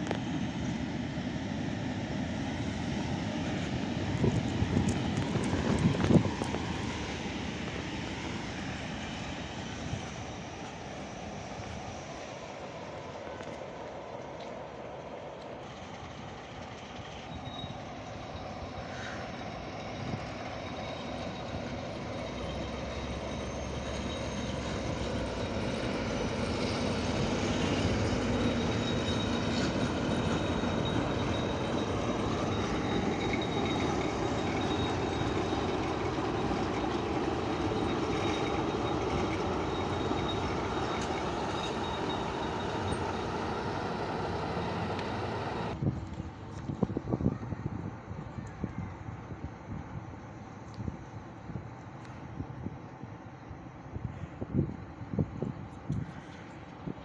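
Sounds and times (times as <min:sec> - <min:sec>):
diesel locomotive running: 0:00.0 - 0:57.0
high-pitched whine: 0:16.3 - 0:45.8.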